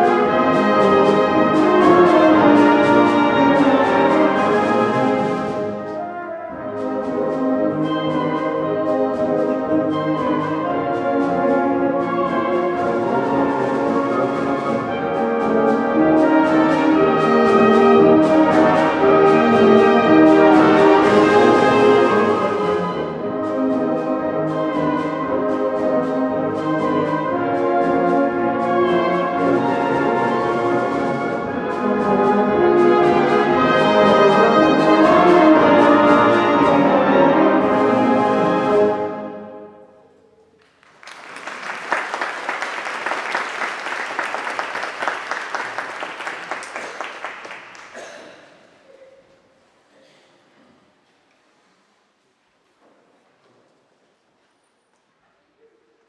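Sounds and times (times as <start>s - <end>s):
concert wind band playing: 0.0s - 39.8s, 41.0s - 48.3s
audience applause: 40.6s - 48.5s.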